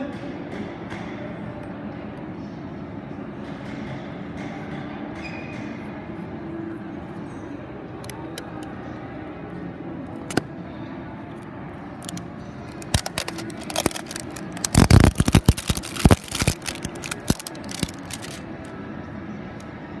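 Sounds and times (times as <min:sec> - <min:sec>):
steady background hum: 0:00.0 - 0:20.0
handling clicks and knocks: 0:12.0 - 0:18.4.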